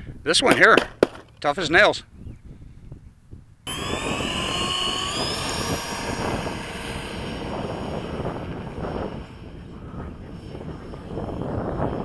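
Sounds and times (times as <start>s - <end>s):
electric ducted fan whining: 3.5s - 12.0s.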